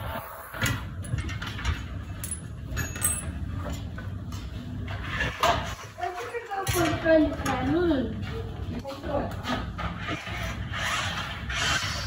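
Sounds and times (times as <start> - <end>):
metal fan knocking and clinking: 0.6 - 4.1.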